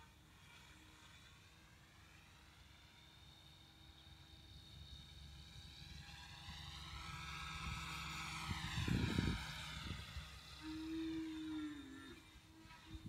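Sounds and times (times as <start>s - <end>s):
rc helicopter rotor whining: 0.0s - 13.0s.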